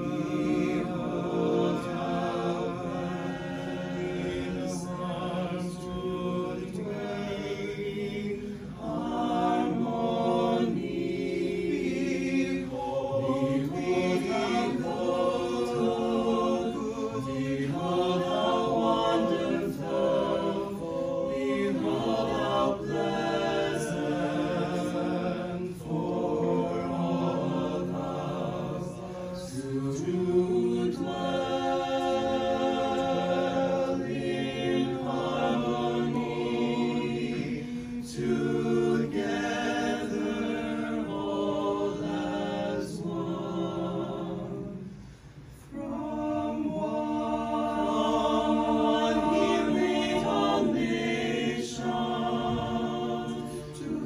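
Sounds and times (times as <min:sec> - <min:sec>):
mixed choir singing: 0:00.0 - 0:54.0.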